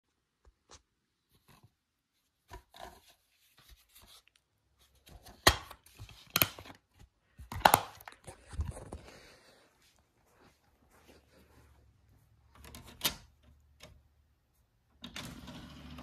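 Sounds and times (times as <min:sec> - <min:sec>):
sharp plastic snaps and clicks: 0:05.4 - 0:06.8, 0:07.4 - 0:08.3.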